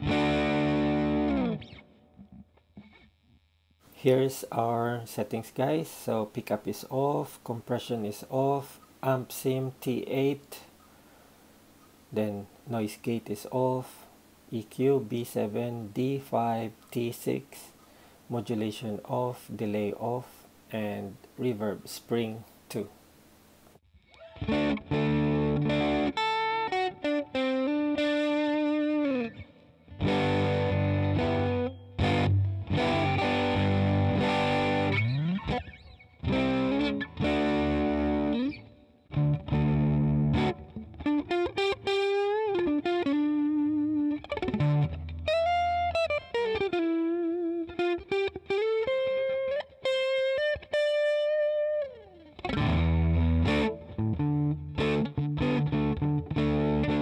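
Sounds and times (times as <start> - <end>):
overdriven electric guitar: 0.0 - 3.4, 24.0 - 57.0.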